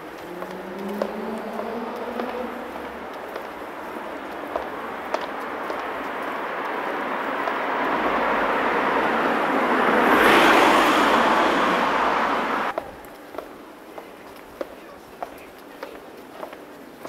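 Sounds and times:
car driving past: 0:00.0 - 0:12.7.

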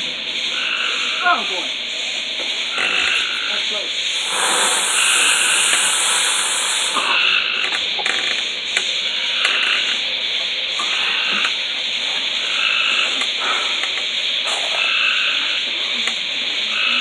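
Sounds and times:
firework hissing: 0:00.0 - 0:16.9
firework crackles: 0:02.8 - 0:10.0.

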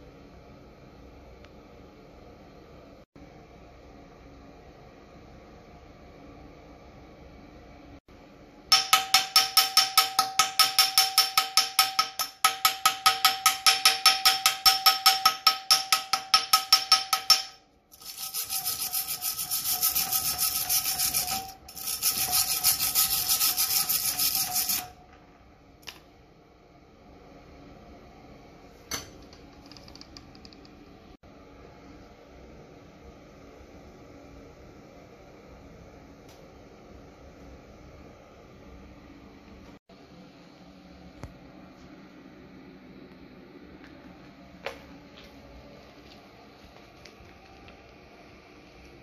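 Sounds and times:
wire brush scrubbing steel: 0:16.2 - 0:25.0.

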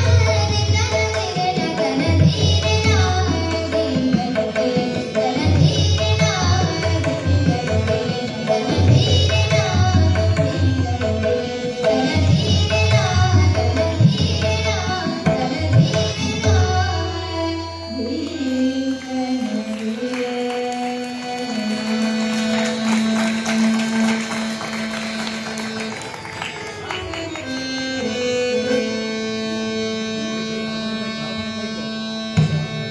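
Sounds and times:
girl singing classical vocal: 0:00.0 - 0:22.5
harmonium: 0:00.0 - 0:32.9
tabla: 0:00.0 - 0:32.9
tanpura drone: 0:00.0 - 0:32.9.

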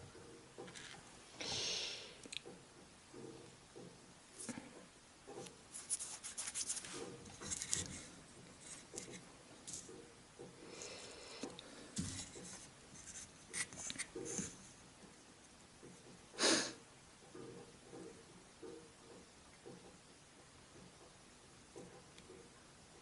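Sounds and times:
wood scratching and rubbing: 0:05.7 - 0:09.8.

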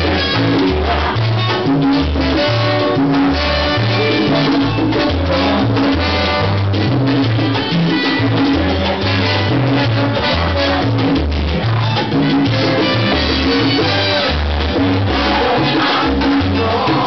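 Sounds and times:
live salsa band playing: 0:00.0 - 0:17.0.

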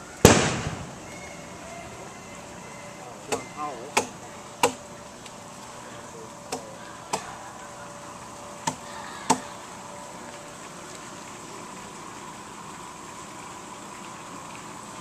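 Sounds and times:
hand tool chopping wood: 0:03.3 - 0:04.8.

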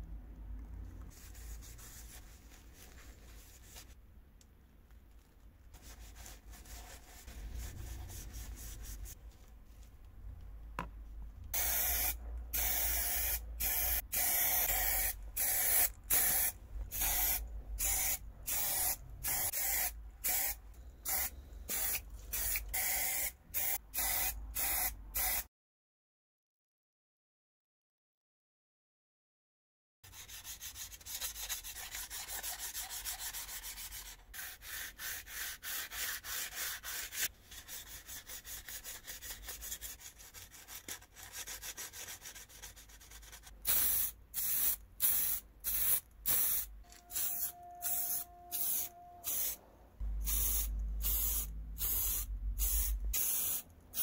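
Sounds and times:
spray paint hissing in bursts: 0:11.6 - 0:25.5, 0:43.6 - 0:49.6, 0:50.2 - 0:54.0.

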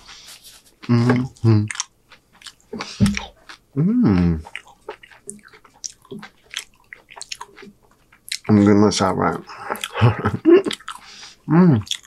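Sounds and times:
muffled vocal sounds: 0:00.8 - 0:01.8, 0:03.0 - 0:04.6, 0:11.5 - 0:11.9
chewing crunchy chips: 0:00.8 - 0:03.6, 0:04.2 - 0:11.2, 0:11.8 - 0:12.0.

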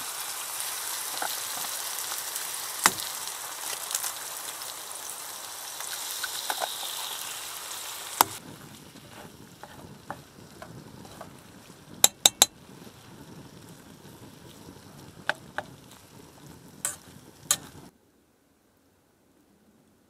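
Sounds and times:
food sizzling in a pan: 0:00.0 - 0:17.9
metal utensil clicking against pan: 0:12.0 - 0:12.5, 0:16.8 - 0:17.7.

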